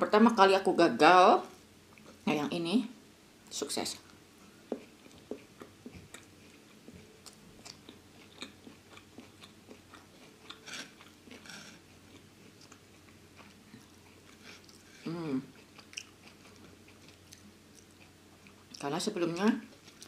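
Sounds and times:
person chewing food: 4.1 - 18.8, 19.4 - 20.0.

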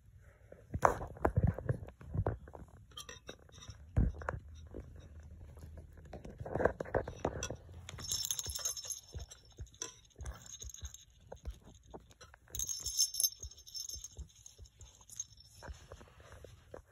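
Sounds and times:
toy taps and rustles: 0.7 - 16.9
small metal bells ringing: 7.4 - 16.0.

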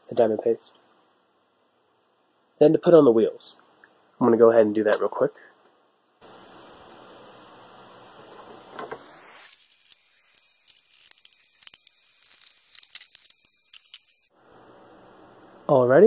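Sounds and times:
steady hiss: 6.2 - 16.0
small metal parts clinking: 9.6 - 14.3.

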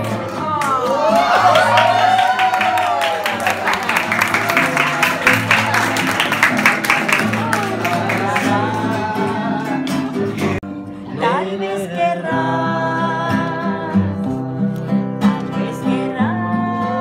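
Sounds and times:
acoustic guitar: 0.0 - 17.0
people singing along: 7.2 - 17.0.

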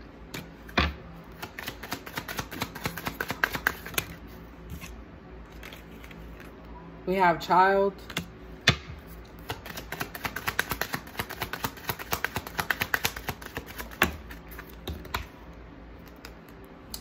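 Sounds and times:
cards being shuffled: 0.3 - 6.6, 9.4 - 15.3.

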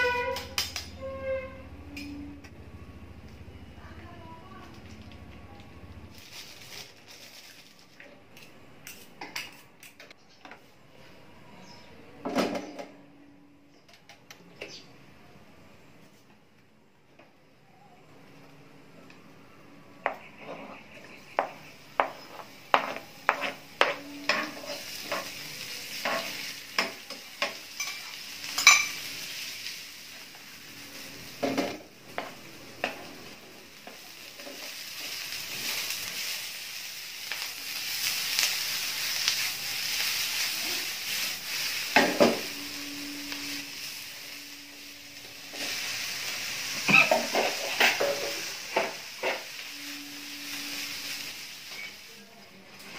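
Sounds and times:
food sizzling in a frying pan: 20.9 - 52.9
metal spatula tapping and scraping pan: 21.4 - 25.4.

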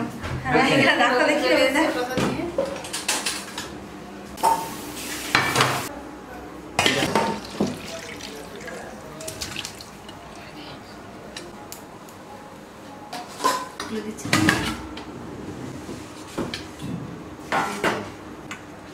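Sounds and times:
curry sloshing while poured: 7.0 - 10.2.

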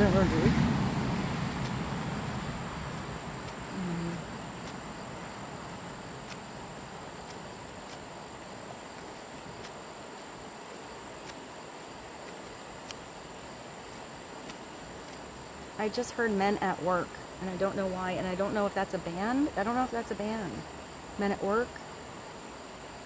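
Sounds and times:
low hum: 0.0 - 16.0
insect chorus trilling: 0.0 - 23.0
faint ticks: 1.6 - 10.3, 11.1 - 15.8.

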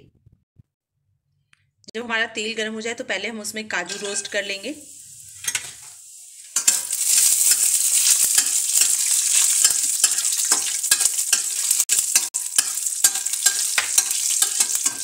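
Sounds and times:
spatula scraping a pan: 3.8 - 15.0
nuts sizzling in oil: 3.9 - 15.0.

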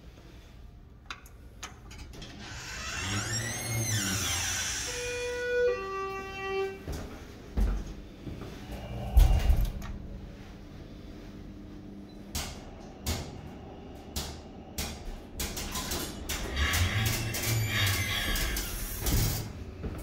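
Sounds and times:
elevator hum: 0.3 - 20.0
elevator doors rumbling open: 1.6 - 6.9, 8.6 - 10.4, 12.2 - 19.9.

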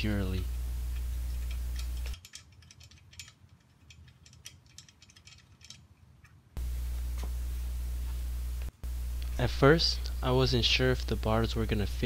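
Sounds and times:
ratchet wrench clicking: 0.9 - 5.8.

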